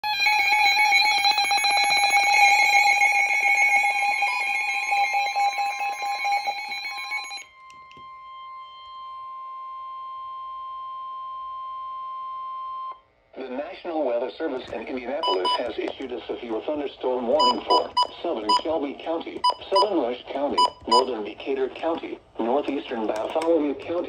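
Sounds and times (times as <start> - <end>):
electronic beeping alarm tones: 15.2 - 15.7, 17.4 - 18.7, 19.4 - 20.0, 20.6 - 21.1
steady warning alarm tone: 15.2 - 15.7, 17.4 - 18.7, 19.4 - 20.0, 20.6 - 21.1.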